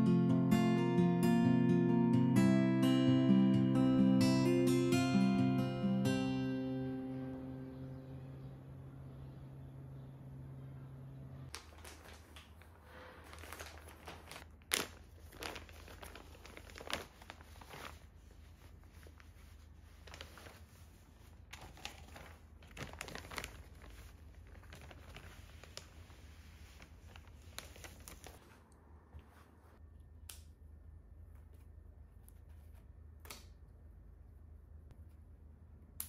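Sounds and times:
faint low hum: 5.1s - 36.0s
plastic bags crinkling: 11.5s - 28.4s.

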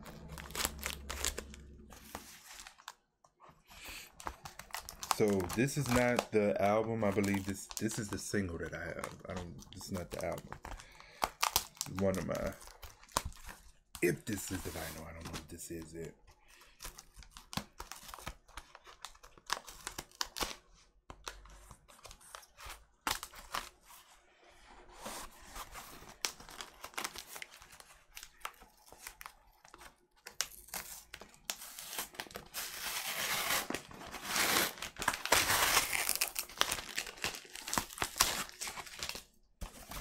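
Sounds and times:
cardboard ripping: 0.0s - 2.9s, 30.5s - 40.0s.

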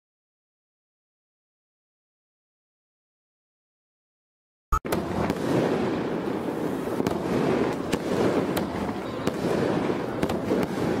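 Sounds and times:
fireworks crackling: 4.9s - 11.0s
fireworks popping: 4.9s - 11.0s.

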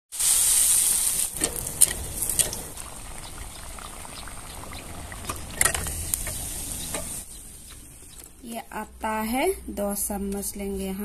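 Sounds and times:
batter sizzling in hot oil: 0.1s - 8.2s
oil spattering pops: 4.5s - 8.4s.

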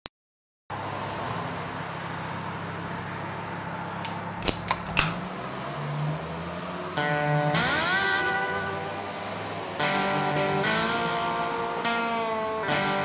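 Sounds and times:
drink can pull tab opening: 4.0s - 5.2s.

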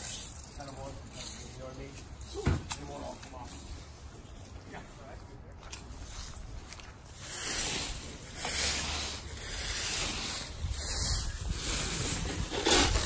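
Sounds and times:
rakes scraping dry leaves: 0.0s - 13.0s.

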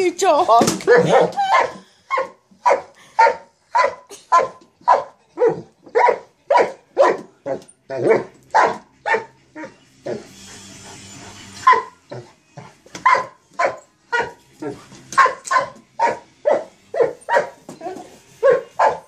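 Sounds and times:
dog barking: 0.9s - 7.3s, 7.9s - 9.3s, 11.6s - 12.0s, 13.0s - 14.4s, 15.2s - 17.6s, 18.4s - 19.0s.

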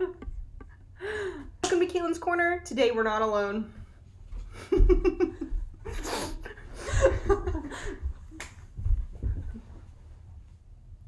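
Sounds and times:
women laughing: 4.5s - 8.1s
low thumps on a sofa: 8.0s - 9.9s.

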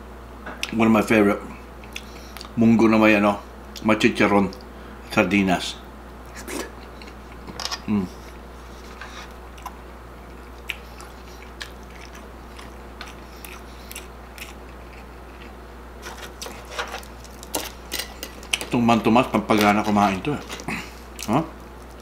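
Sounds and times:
man chewing food: 1.8s - 2.6s, 6.2s - 18.8s, 19.4s - 22.0s
voice humming: 7.8s - 8.2s.

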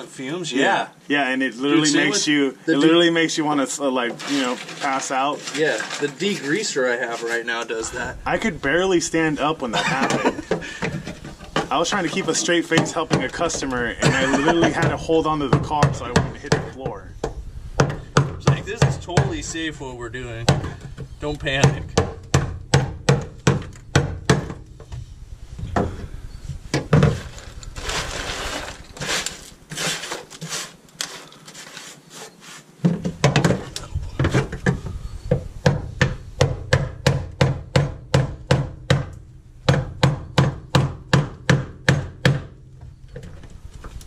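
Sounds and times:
soft scraping: 3.6s - 9.7s, 24.7s - 32.8s.

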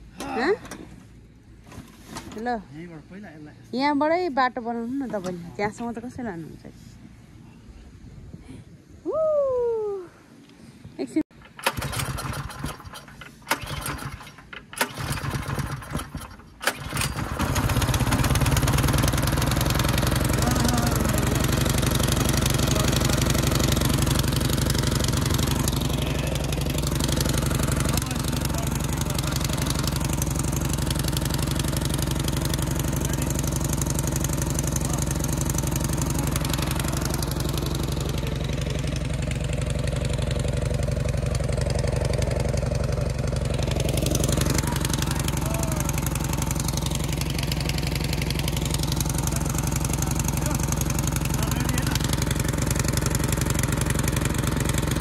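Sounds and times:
small gas engine cranking: 11.3s - 55.0s
small gas engine running: 11.3s - 55.0s.

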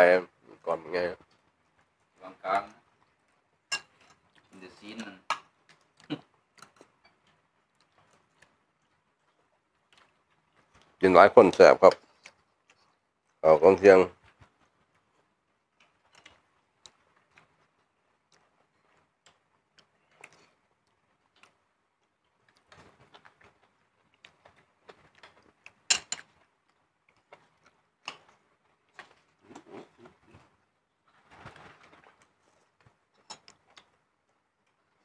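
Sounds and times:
spoons clinking on plates: 3.7s - 4.2s, 25.9s - 26.3s.

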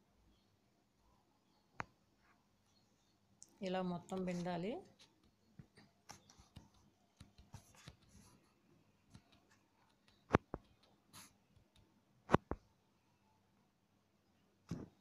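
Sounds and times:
sharp clicks: 9.1s - 12.6s.

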